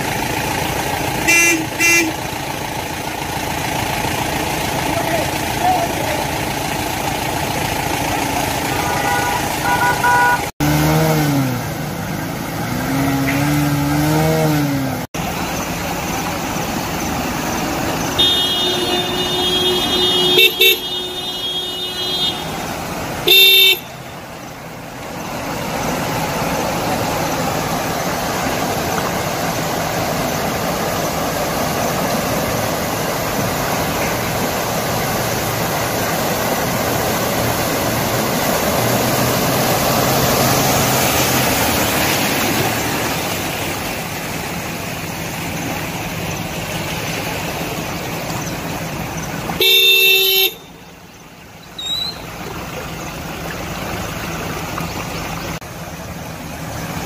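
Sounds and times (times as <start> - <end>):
road traffic: 0.0 - 57.0
vehicle horns honking: 1.2 - 2.3, 8.6 - 10.5, 18.0 - 24.3, 49.5 - 51.0.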